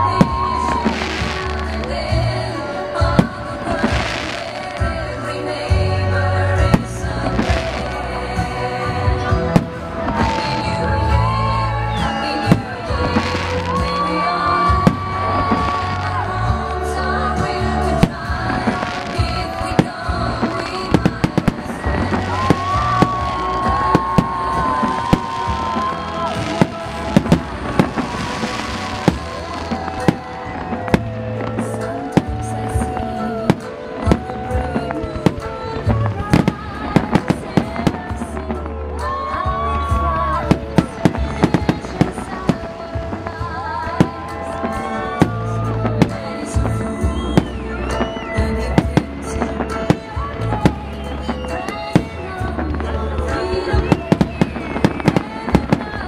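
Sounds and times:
fireworks bangs: 0.0s - 5.9s, 6.6s - 56.0s
music with gliding notes: 0.0s - 56.0s.

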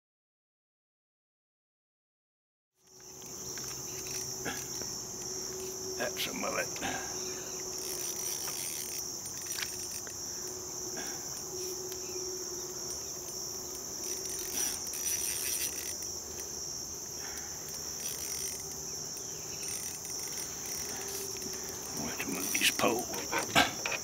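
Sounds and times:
insects buzzing: 2.8s - 24.0s
clicks and rustles: 6.6s - 10.6s, 17.2s - 24.0s.

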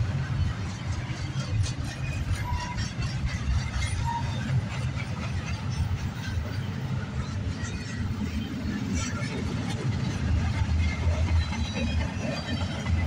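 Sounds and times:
train wheels rumbling on rail: 0.0s - 13.0s
wheel squeals: 1.3s - 4.8s.

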